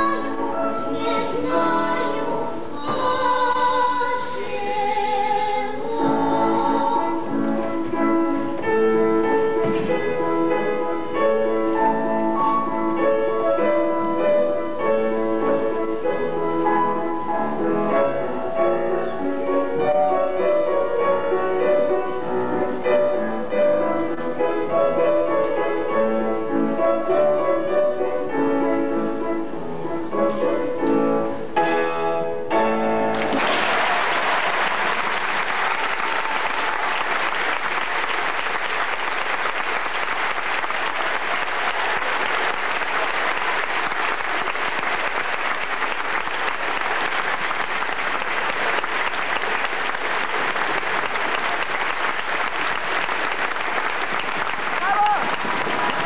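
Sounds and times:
audience applause: 33.2s - 56.0s.

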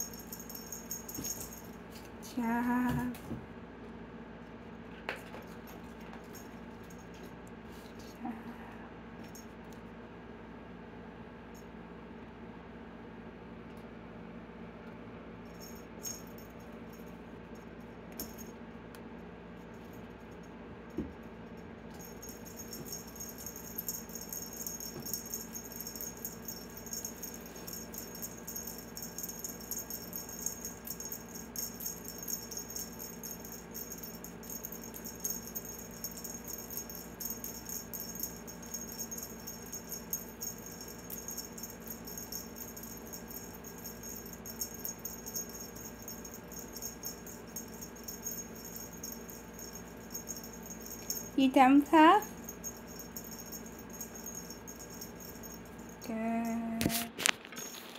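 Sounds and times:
cat toy jingling and rattling: 0.0s - 3.1s, 15.5s - 17.1s, 21.9s - 57.9s.

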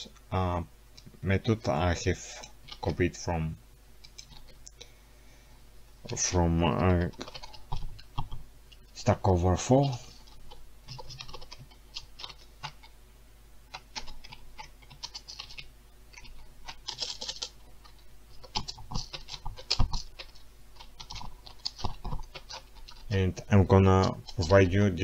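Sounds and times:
computer keyboard typing: 4.0s - 4.6s, 7.1s - 8.4s, 10.5s - 12.9s, 13.7s - 23.0s.

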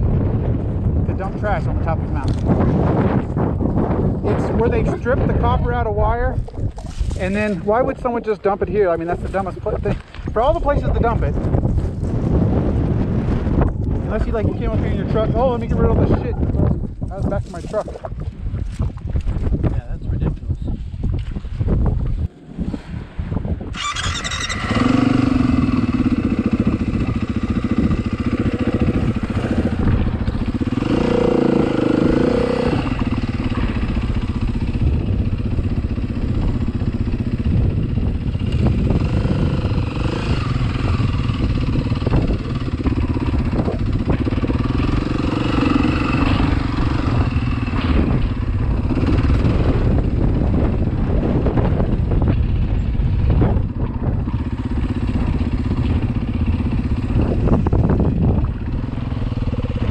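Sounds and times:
motorcycle engine revving: 22.2s - 59.9s.

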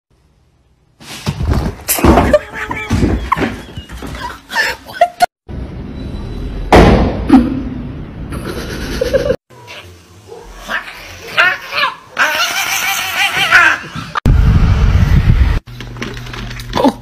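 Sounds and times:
loud thump: 6.7s - 7.3s.

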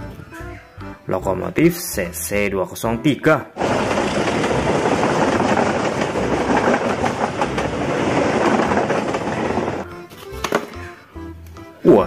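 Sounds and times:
background music: 0.0s - 12.0s
train wheels clattering over rail joints: 3.6s - 10.7s.

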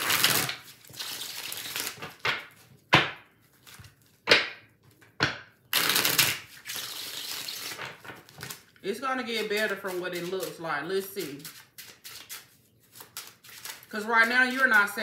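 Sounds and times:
cards shuffling: 0.0s - 2.6s, 5.7s - 15.0s
cards snapping: 5.8s - 8.6s.

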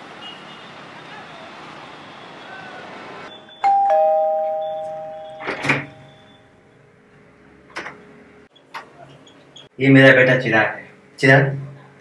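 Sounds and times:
two-tone doorbell chime: 3.6s - 6.4s
door opening click: 4.7s - 6.1s.

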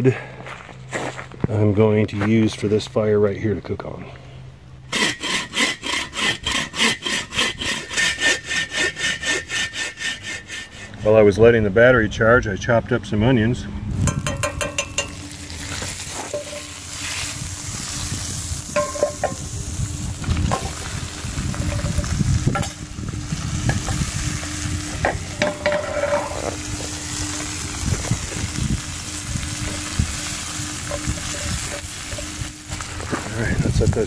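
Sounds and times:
onions sizzling in a pan: 14.2s - 33.5s
wooden spatula scraping a pan: 20.4s - 22.8s, 24.9s - 27.2s, 29.6s - 33.4s.

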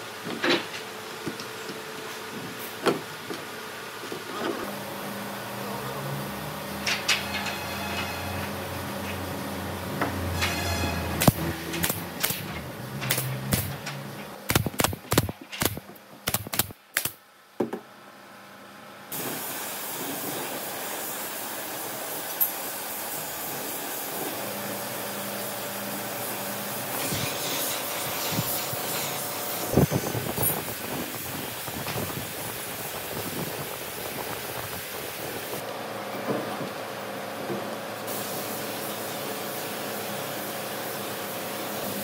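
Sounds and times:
workshop handling sounds: 0.1s - 4.7s, 6.7s - 16.7s
air hissing from spray tool: 19.1s - 24.3s, 26.9s - 35.6s, 38.1s - 42.0s.

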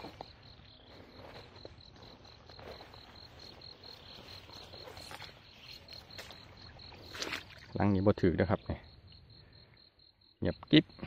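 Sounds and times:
footsteps rustling through grass: 0.0s - 7.5s
insect chirping: 0.0s - 11.0s.

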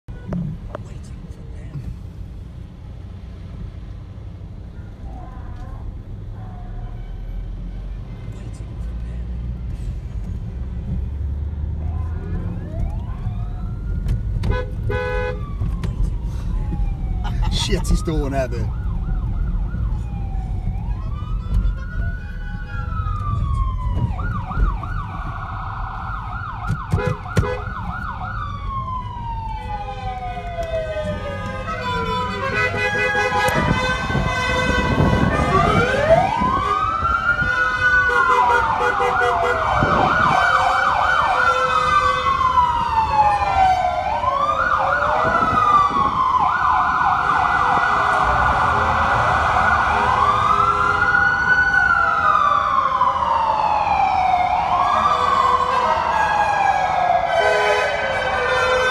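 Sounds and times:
siren horns wailing and yelping: 11.8s - 58.9s.

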